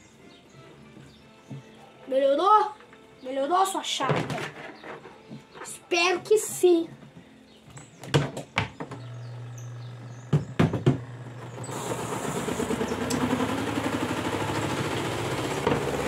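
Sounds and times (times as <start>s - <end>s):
spin dryer motor whirring: 8.9s - 16.0s
spin basket knocking: 10.3s - 11.6s.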